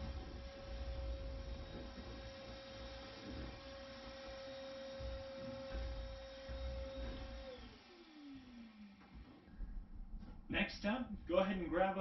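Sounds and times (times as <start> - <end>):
low rumbling of vacuum hose: 0.0 - 7.8
shop vacuum whining: 0.0 - 9.6.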